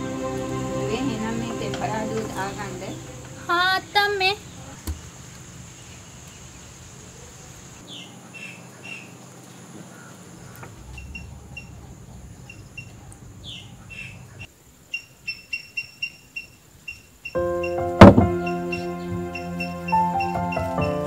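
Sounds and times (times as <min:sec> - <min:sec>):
birds chirping: 0:00.0 - 0:21.0
high insect buzz: 0:15.0 - 0:21.0.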